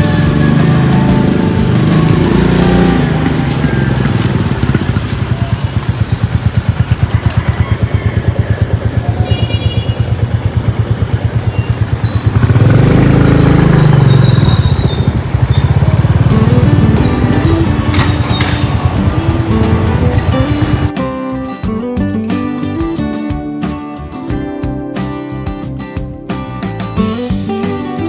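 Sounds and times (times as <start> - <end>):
motorcycle engine puttering: 0.0 - 20.9.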